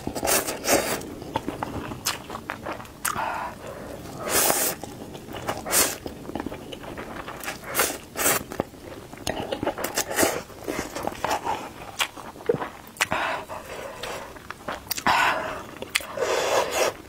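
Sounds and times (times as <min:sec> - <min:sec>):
slurping noodles: 0:00.0 - 0:01.0, 0:03.5 - 0:04.8, 0:05.5 - 0:06.0, 0:07.3 - 0:08.5, 0:15.3 - 0:17.0
chewing: 0:00.0 - 0:17.0.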